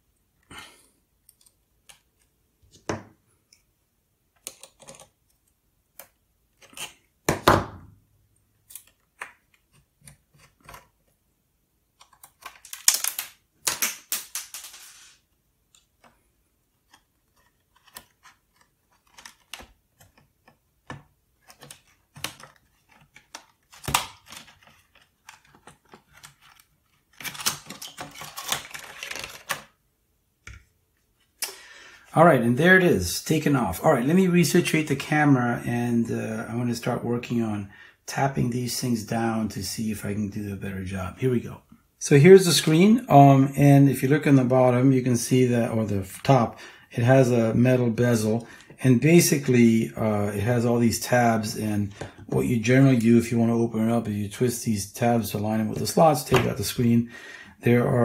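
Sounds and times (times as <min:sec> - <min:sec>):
plastic scraping and rustling: 0:12.0 - 0:29.8.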